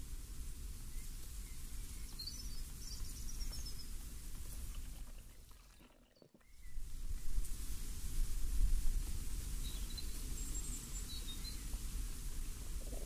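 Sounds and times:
low breeze rumble: 6.5s - 13.0s.

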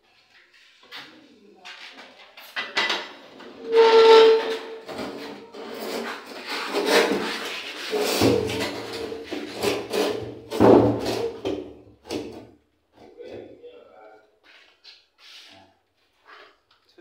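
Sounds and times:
bathtub scraping on tiled floor: 2.8s - 12.3s
short loud squeal: 3.7s - 4.9s.

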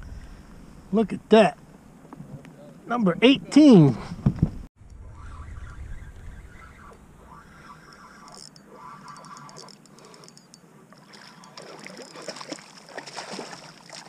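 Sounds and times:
water lapping: 6.5s - 14.0s
fish thrashing and splashing: 11.0s - 14.0s.

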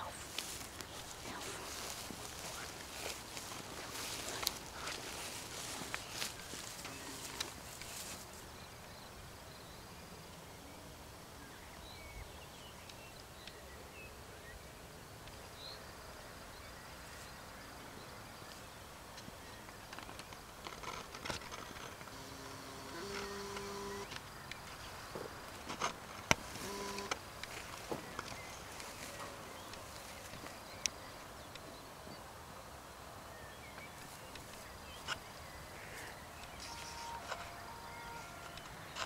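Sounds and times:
faint chirps: 33.5s - 39.0s.

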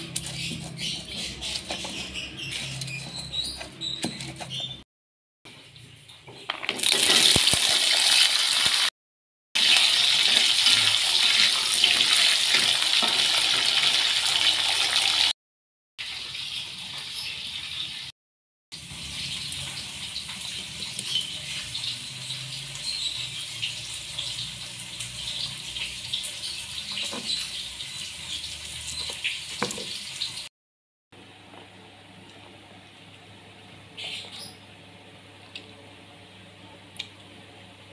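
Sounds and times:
food sizzling in hot oil: 6.6s - 8.9s, 9.6s - 15.3s, 18.8s - 30.5s.

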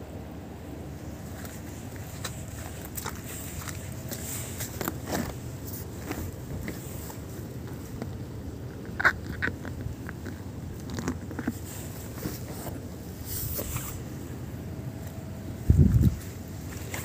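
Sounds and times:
low outdoor rumble: 0.0s - 17.0s
footsteps and phone handling clicks: 1.3s - 11.6s.

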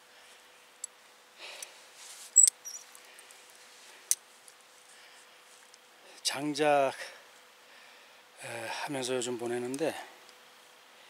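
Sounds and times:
brief high squeak: 2.4s - 2.8s.

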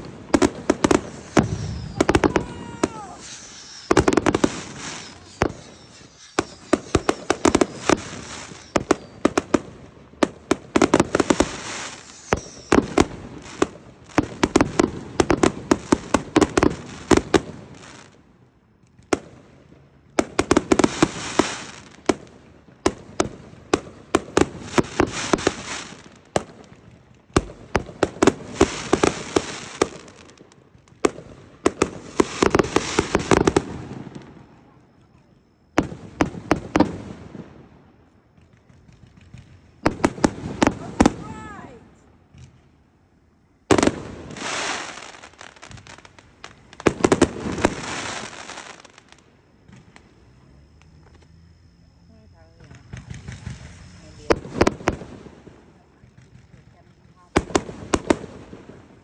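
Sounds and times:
fireworks launching and bursting: 0.0s - 51.3s, 52.6s - 59.0s
fireworks crackling: 0.0s - 59.0s.

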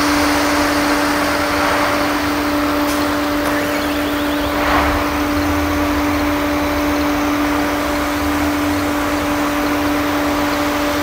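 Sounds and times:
steady machine drone: 0.0s - 11.0s
low rumble: 1.4s - 9.4s.

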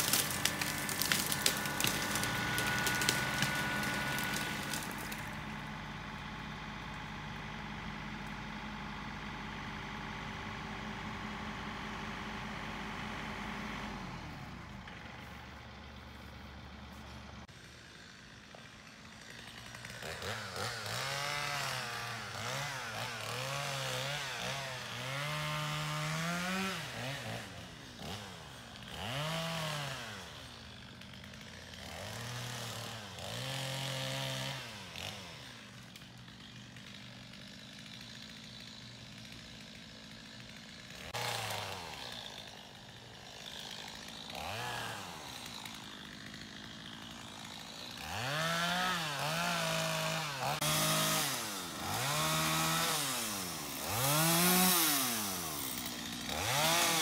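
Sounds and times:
tractor diesel engine under load: 0.0s - 23.8s
engine revving up and down: 48.0s - 55.4s, 56.3s - 57.0s.

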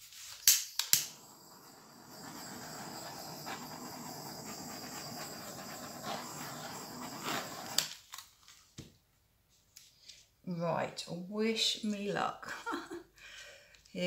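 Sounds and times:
torch flame hissing: 0.0s - 8.0s.

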